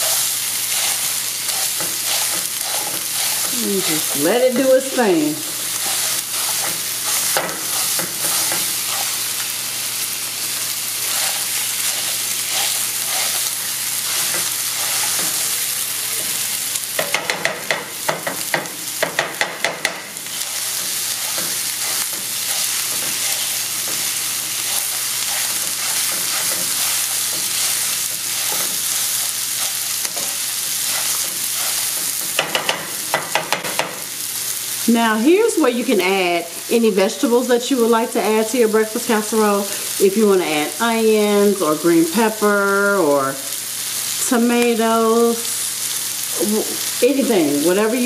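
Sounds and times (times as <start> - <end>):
sausage sizzling in a skillet: 0.0 - 48.0
spatula tapping against pan: 17.0 - 20.1, 32.3 - 34.0.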